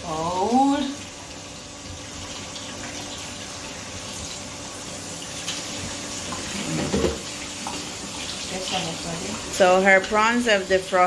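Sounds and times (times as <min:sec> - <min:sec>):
tap running into steel bowl: 0:06.3 - 0:07.8.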